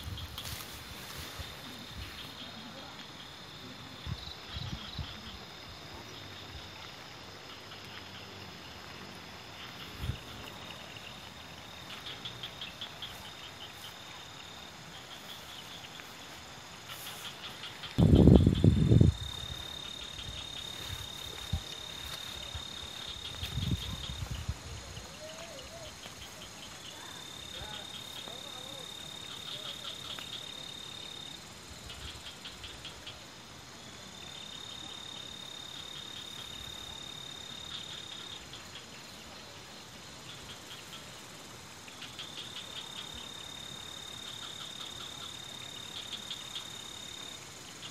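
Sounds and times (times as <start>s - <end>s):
faint hiss: 0.0s - 18.2s
background hiss: 0.0s - 47.9s
crickets chirping: 0.0s - 47.9s
insect trilling: 0.0s - 47.9s.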